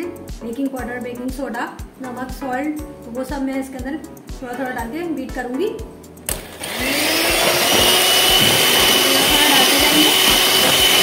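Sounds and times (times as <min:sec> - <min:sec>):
electric hand mixer whining: 0:06.3 - 0:11.0.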